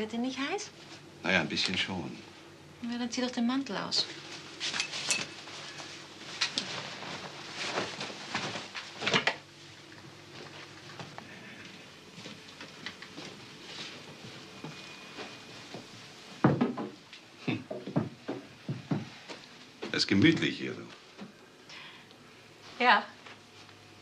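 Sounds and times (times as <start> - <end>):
rustling: 4.1 - 16.3
soft knocks: 17.6 - 19.2.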